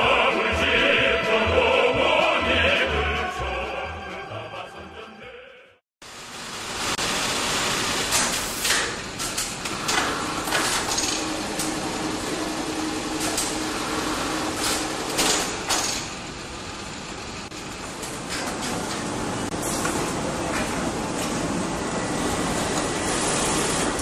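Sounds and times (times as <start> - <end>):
sewing machines clattering: 8.0 - 16.3
steady machine hum: 8.9 - 24.0.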